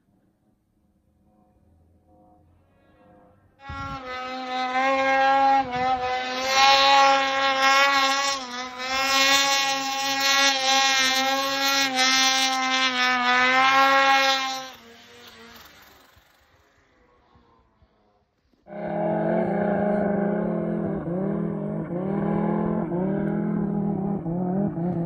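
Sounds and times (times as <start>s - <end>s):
snowmobile engine at high revs: 3.6s - 25.0s.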